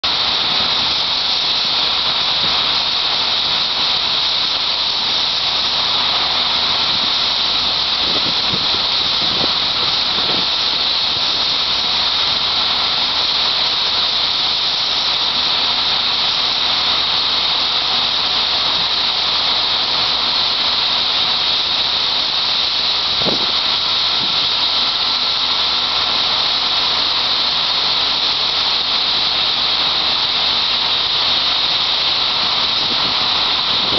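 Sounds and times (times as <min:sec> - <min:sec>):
corn pouring with rushing hiss: 0:00.0 - 0:33.9
faint steady whine: 0:00.0 - 0:33.9
tractor engines running: 0:00.0 - 0:33.9.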